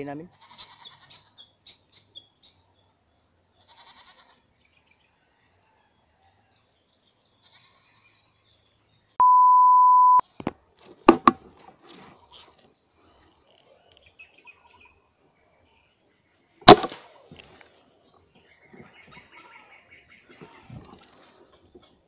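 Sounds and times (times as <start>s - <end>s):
steady electronic beep: 9.2s - 10.2s.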